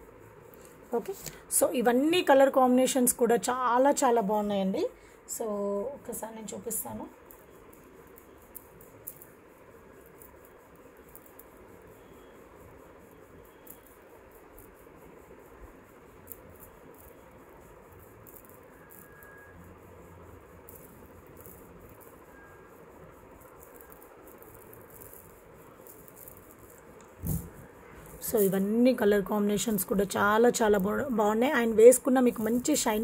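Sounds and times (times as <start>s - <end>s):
steady hiss: 0.0s - 33.0s
microphone handling clicks: 27.2s - 27.6s.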